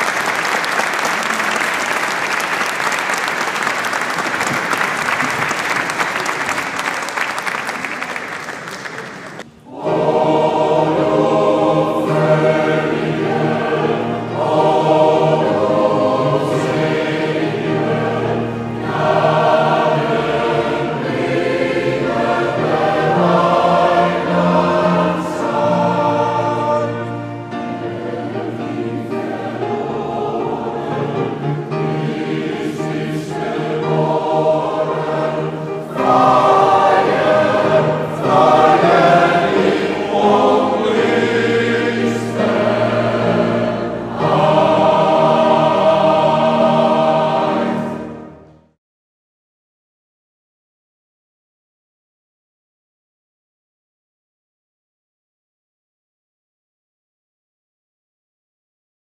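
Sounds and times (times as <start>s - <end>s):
mixed choir singing: 7.7s - 48.4s.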